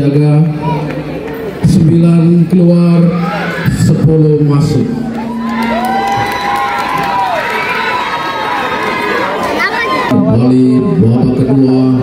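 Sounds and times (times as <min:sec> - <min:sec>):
crowd cheering and shouting: 0:02.8 - 0:04.1, 0:04.8 - 0:11.7
long drawn-out shout: 0:05.1 - 0:10.2.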